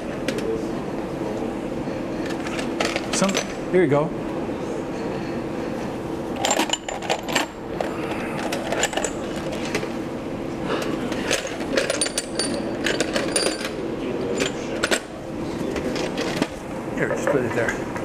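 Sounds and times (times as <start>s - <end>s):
steady low hum: 0.0s - 18.0s
metal parts clinking on a tray: 11.3s - 13.8s.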